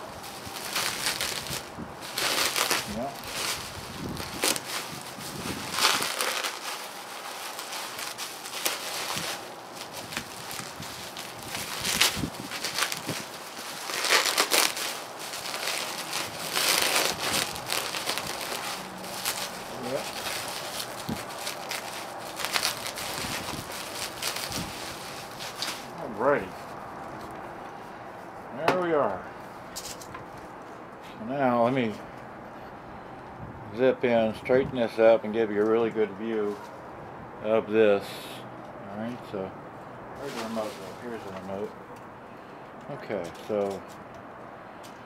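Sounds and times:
bubble wrap crinkling: 0.0s - 27.4s, 40.2s - 41.8s.

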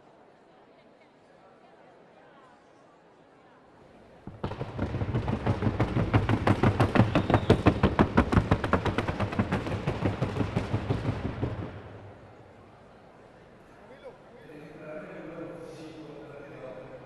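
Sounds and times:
hooves on wooden board: 4.2s - 11.8s.

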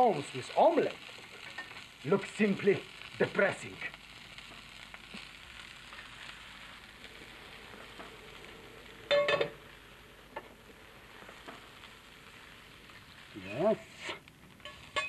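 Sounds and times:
meat sizzling in a pan: 0.0s - 15.0s
ringing metal clank: 9.1s - 9.6s.

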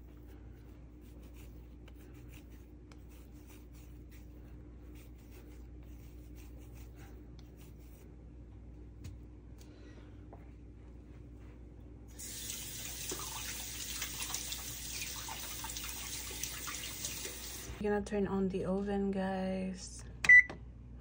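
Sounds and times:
hands rubbing dough: 0.0s - 8.7s
steady low hum: 0.0s - 12.2s.

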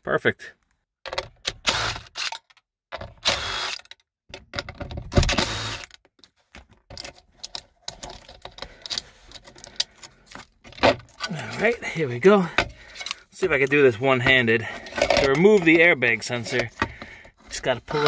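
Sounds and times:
cordless driver whirring: 3.2s - 4.0s, 5.3s - 6.0s
clicks and rattles of handling: 5.8s - 18.0s.

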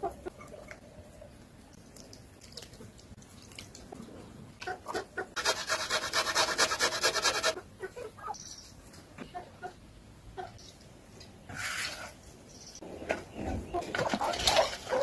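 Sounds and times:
box grater rasping: 5.4s - 7.6s.

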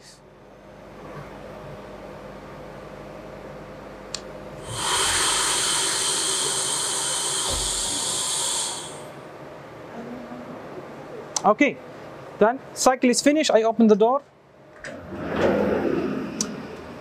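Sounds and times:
low machine hum: 0.0s - 17.0s
loud steady hiss inside machine: 4.6s - 9.8s.

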